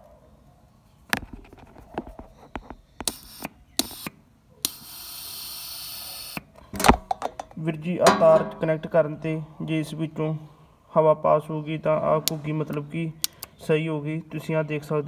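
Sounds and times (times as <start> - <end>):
electrical clicks and crackles: 1.1 - 4.1
air hissing through valve: 4.7 - 6.4.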